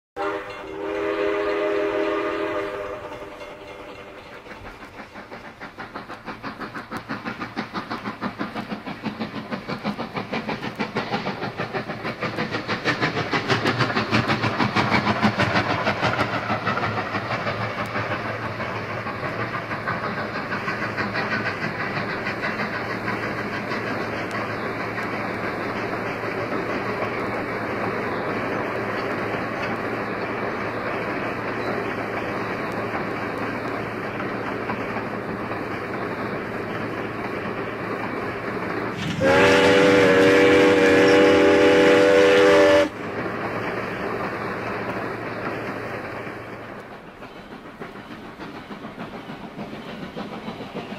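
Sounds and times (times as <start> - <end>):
steam locomotive whistle: 0.2 - 4.7, 39.0 - 43.0
steam engine exhaust chuffing: 0.2 - 50.9.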